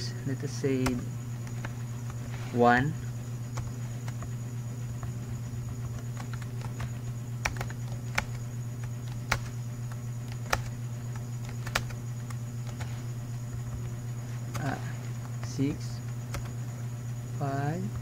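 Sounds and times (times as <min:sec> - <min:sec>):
steady low hum: 0:00.0 - 0:18.0
keyboard clicks: 0:05.8 - 0:12.9.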